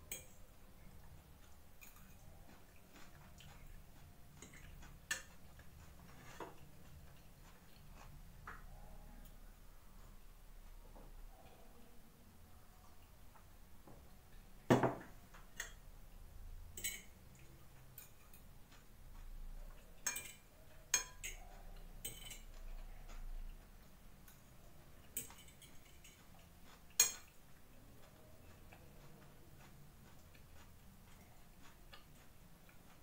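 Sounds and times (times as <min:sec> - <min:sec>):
fork scraping a plate: 0:01.7 - 0:08.2, 0:17.8 - 0:33.0.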